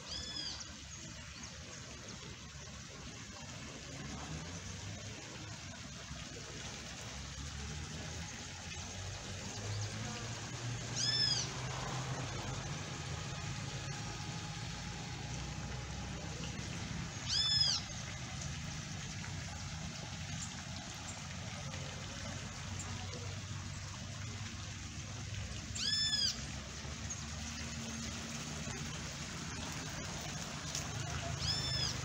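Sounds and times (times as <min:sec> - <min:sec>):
fountain water splashing: 0:00.0 - 0:32.0
high-pitched animal call: 0:11.0 - 0:11.5, 0:17.2 - 0:17.8, 0:25.8 - 0:26.4, 0:31.4 - 0:32.0.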